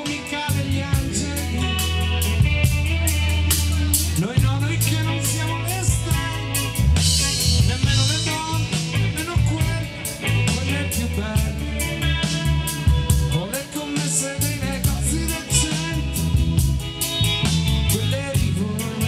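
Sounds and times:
man singing into a microphone: 0.0 - 2.5, 4.0 - 12.4, 13.3 - 16.6, 17.9 - 19.0
drums keeping a steady beat: 0.0 - 19.0
live band playing: 0.0 - 19.0.

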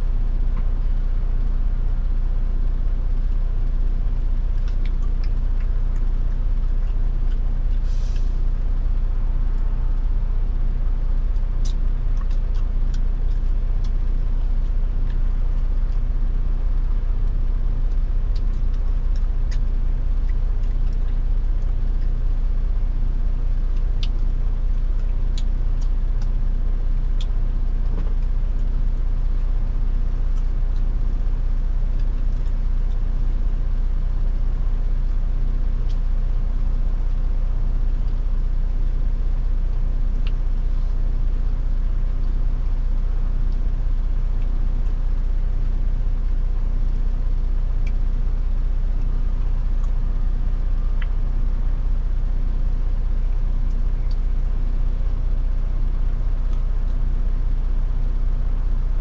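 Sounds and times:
diesel truck engine rumbling: 0.0 - 32.0.

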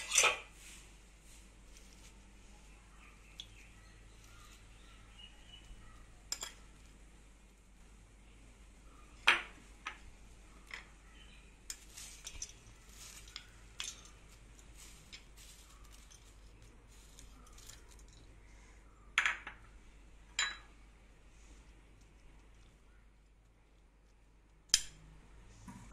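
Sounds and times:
steel and glass dishes clinking: 0.0 - 0.4, 6.3 - 6.6, 20.4 - 20.7.

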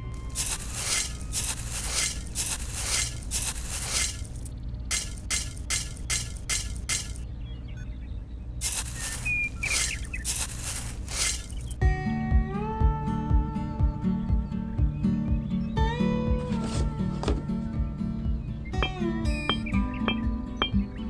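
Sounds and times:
metal trowel scraping dry soil: 0.0 - 7.2, 8.6 - 11.8
bird chirping: 0.1 - 11.8, 18.0 - 21.0.

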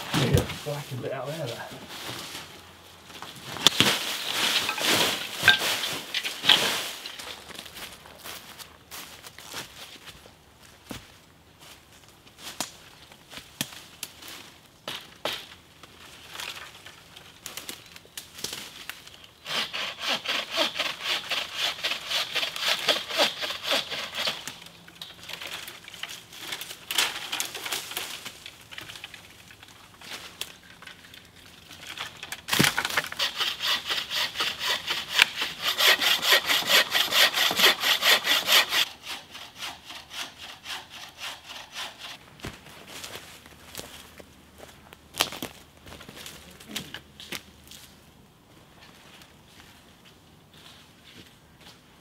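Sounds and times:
hand saw cutting branch: 19.4 - 27.6, 31.9 - 42.2.

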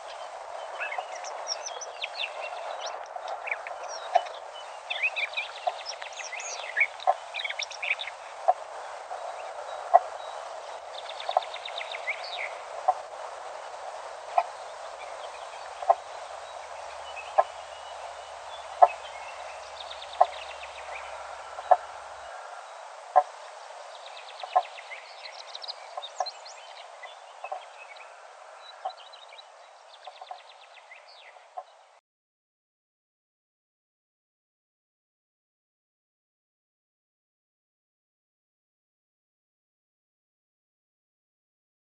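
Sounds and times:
songbirds trilling and calling: 0.0 - 13.2, 13.9 - 31.8
soft hiss: 0.0 - 32.0.

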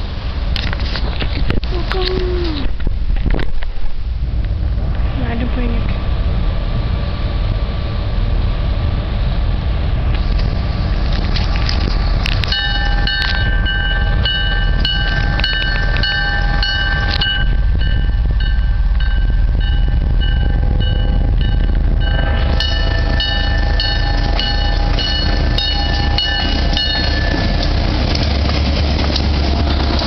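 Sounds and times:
diesel locomotive rumble: 0.0 - 30.0
locomotive bell ringing: 12.4 - 30.0.

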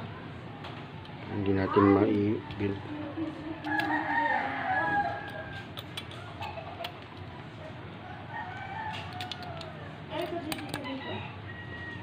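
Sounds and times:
rooster crowing: 3.7 - 5.7, 8.0 - 10.0, 10.8 - 12.0
handling clicks: 8.9 - 10.9.

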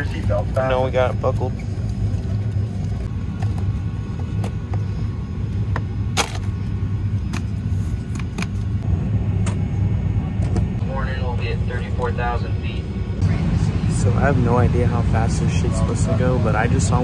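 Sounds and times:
airliner cabin rumble: 0.0 - 17.0.

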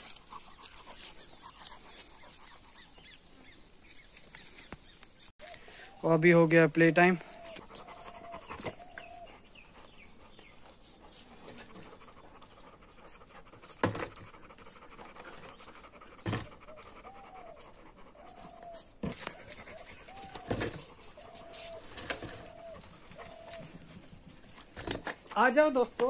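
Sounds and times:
dogs panting: 0.0 - 26.0.

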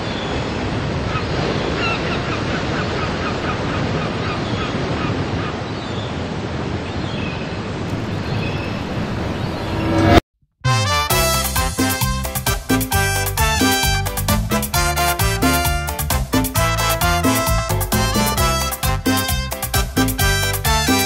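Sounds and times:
ocean surf washing: 0.0 - 10.2
seabirds calling: 1.0 - 6.2.

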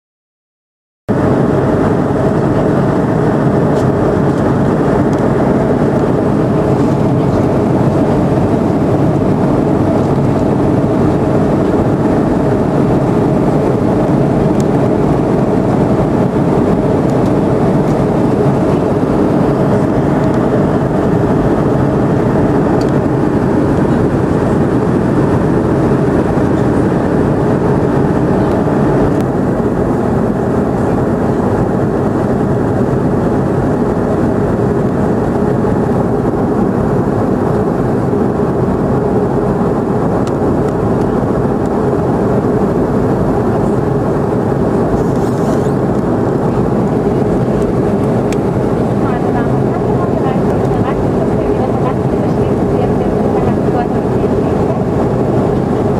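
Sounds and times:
jet airliner cabin drone: 1.1 - 55.9.

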